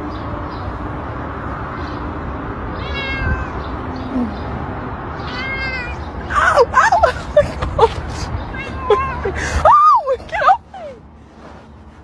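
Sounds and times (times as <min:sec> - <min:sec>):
cat meowing: 0:02.8 - 0:03.7, 0:05.2 - 0:06.1, 0:08.5 - 0:09.2.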